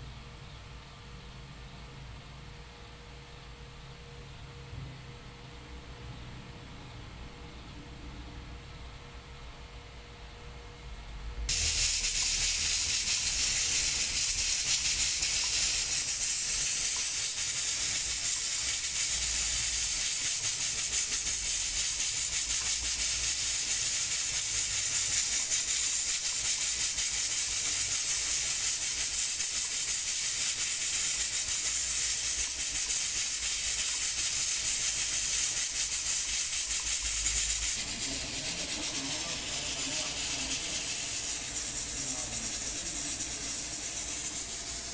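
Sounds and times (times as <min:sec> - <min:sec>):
pressure cooker hissing steam: 0:11.4 - 0:44.9.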